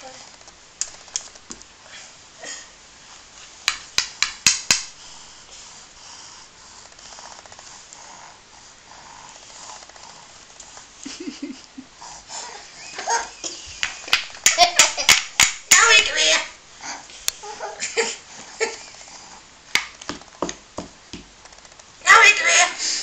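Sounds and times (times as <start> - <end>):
wooden toy pieces clacking: 3.7 - 4.9, 13.8 - 16.0, 19.7 - 20.2
toy pieces rattling: 13.8 - 16.0.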